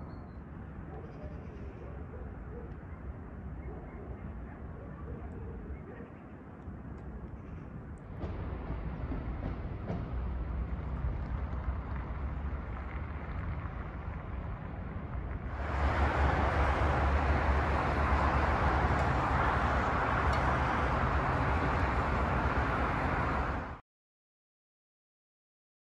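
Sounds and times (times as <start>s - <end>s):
road traffic noise: 0.0s - 23.8s.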